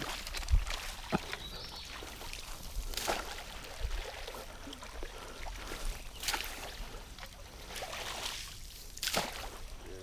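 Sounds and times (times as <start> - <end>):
net splashing through water: 7.7 - 9.6.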